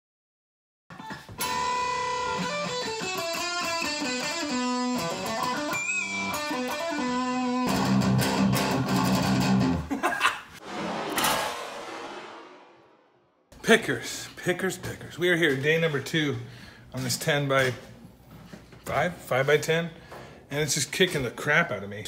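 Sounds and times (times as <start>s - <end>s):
electric guitar rock riff: 1.4s - 9.9s.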